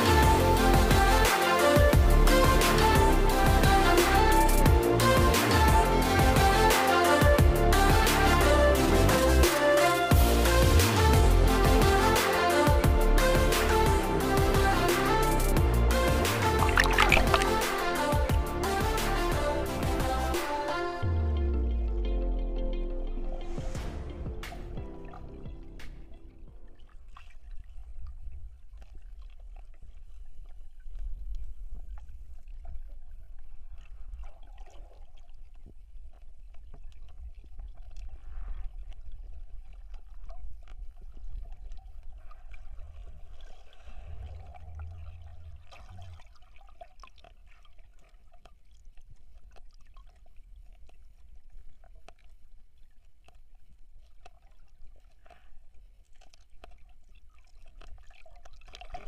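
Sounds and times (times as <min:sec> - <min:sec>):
underwater river rumble: 0:13.0 - 0:20.4, 0:21.6 - 0:59.0
water gurgling: 0:16.1 - 0:18.6, 0:24.9 - 0:59.0.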